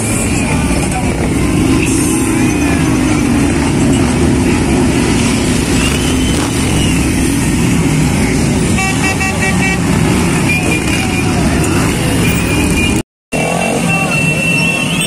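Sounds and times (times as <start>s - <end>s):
motorcycles riding past: 2.3s - 8.8s
horn beeping rapidly: 5.7s - 7.4s.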